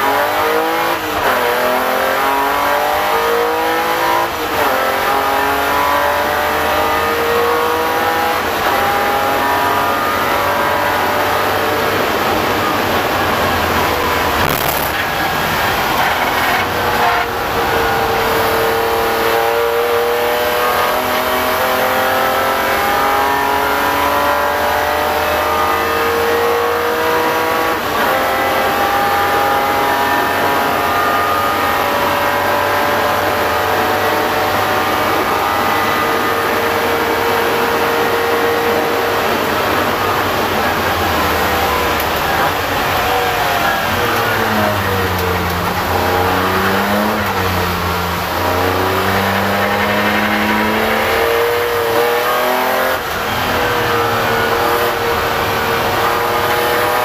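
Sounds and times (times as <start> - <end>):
race car engine at full throttle: 0.0 - 57.0.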